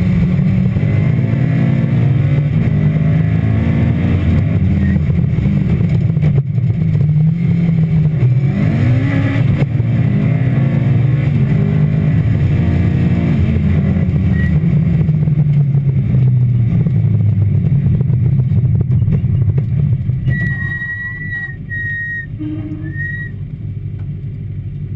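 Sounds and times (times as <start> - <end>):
rally car engine revving: 0.0 - 23.4
short high-pitched beeps: 14.3 - 14.6, 20.3 - 23.4.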